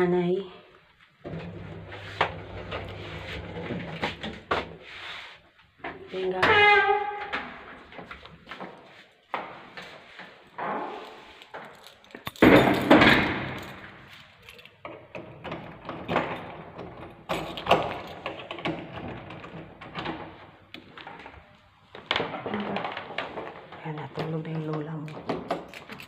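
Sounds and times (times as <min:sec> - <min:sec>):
sliding door rumbling: 0:01.2 - 0:04.6, 0:15.2 - 0:20.6.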